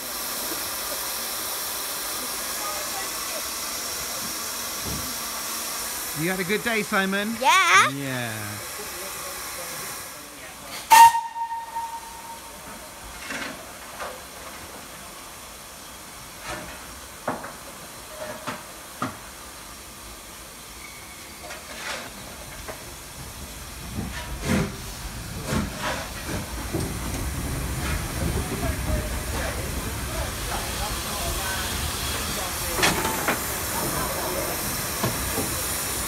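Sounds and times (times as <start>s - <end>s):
steam locomotive hissing: 0.0s - 17.2s, 22.8s - 36.0s
locomotive whistle toot: 10.9s - 12.7s.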